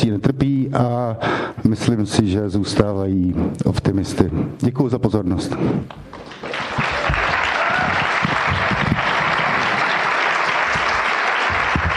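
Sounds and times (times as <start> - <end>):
audience applause: 6.0 - 11.9.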